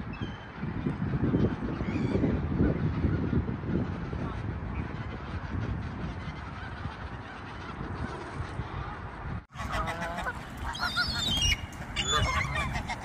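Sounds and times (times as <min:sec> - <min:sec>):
geese honking: 0:02.6 - 0:08.5, 0:09.5 - 0:13.0
gulls calling: 0:04.8 - 0:13.0.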